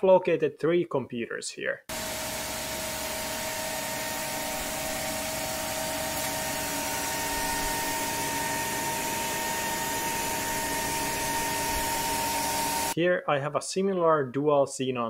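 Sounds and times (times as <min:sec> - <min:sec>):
computer cooling fans: 0:01.9 - 0:13.0.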